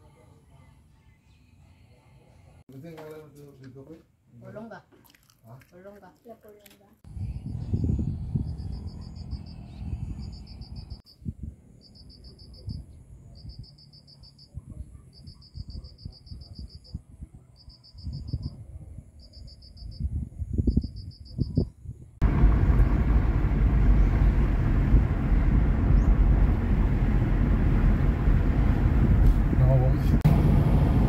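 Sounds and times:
wind gusts: 0:07.0 - 0:13.8, 0:14.5 - 0:31.0
car road and engine noise: 0:07.1 - 0:12.4, 0:22.2 - 0:31.0
insect chirping trills: 0:07.1 - 0:17.0, 0:17.6 - 0:21.8.

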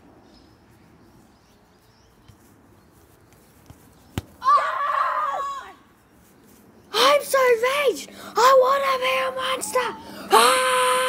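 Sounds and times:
child yelling: 0:04.4 - 0:05.8, 0:07.0 - 0:11.0.

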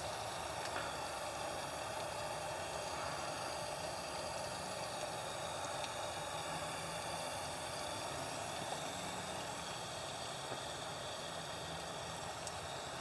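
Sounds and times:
machine hum with hiss: 0:00.0 - 0:13.0.

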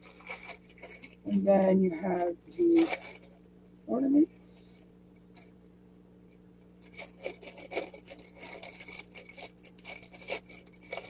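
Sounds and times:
plastic bag crinkling: 0:00.0 - 0:05.6, 0:06.6 - 0:11.0.

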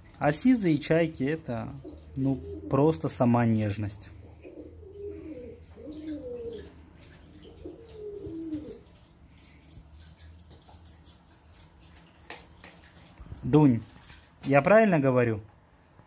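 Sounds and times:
pigeon cooing: 0:01.6 - 0:03.3, 0:04.0 - 0:10.2
faint water splashing: 0:05.2 - 0:15.6.

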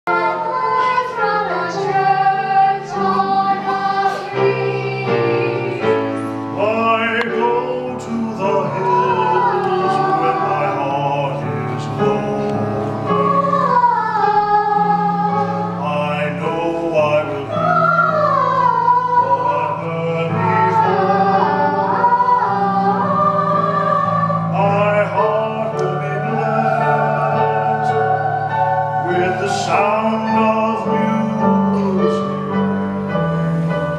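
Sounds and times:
man singing: 0:06.5 - 0:13.4, 0:15.8 - 0:17.8, 0:19.2 - 0:21.1, 0:24.4 - 0:28.1, 0:29.0 - 0:32.8.

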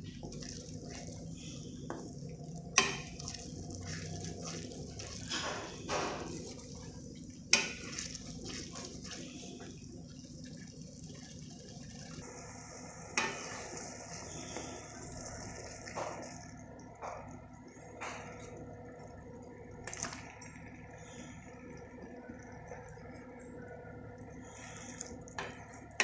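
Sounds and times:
gravy sizzling and bubbling: 0:00.0 - 0:26.0.

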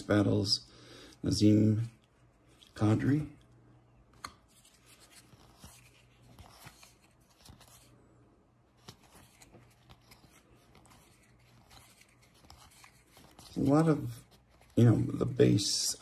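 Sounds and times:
cards rustling and flicking: 0:04.1 - 0:08.0, 0:08.7 - 0:16.0.

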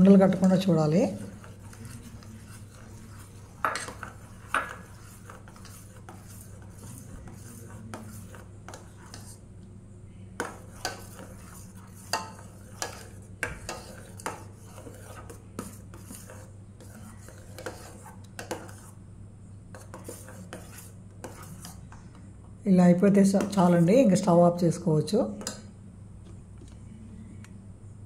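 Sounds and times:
spoon scraping a saucepan: 0:00.0 - 0:09.4, 0:10.4 - 0:19.0, 0:19.7 - 0:21.9
steady low hum: 0:00.0 - 0:28.0.

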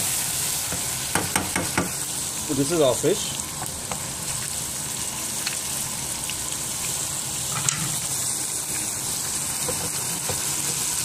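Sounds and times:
fish sizzling in oil: 0:00.0 - 0:11.0
spatula knocking against pan: 0:01.1 - 0:01.9.

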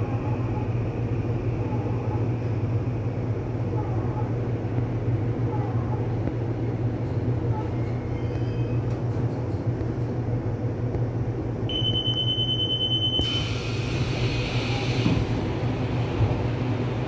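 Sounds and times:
train low rumble: 0:00.0 - 0:17.0
train door warning beep: 0:11.7 - 0:13.8
air hiss of doors: 0:13.2 - 0:15.5.

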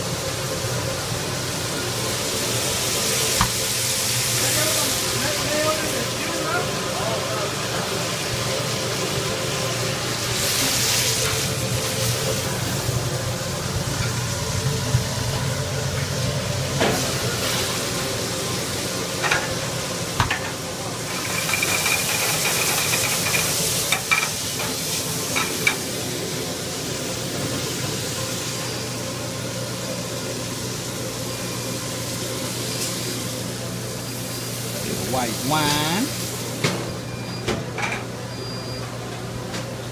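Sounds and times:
vegetables sizzling in pans: 0:00.0 - 0:37.1
pans clanking: 0:20.2 - 0:25.9.

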